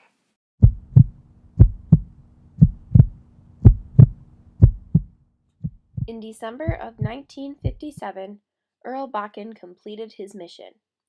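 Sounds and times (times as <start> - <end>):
heartbeat thumps: 0.6 - 8.1.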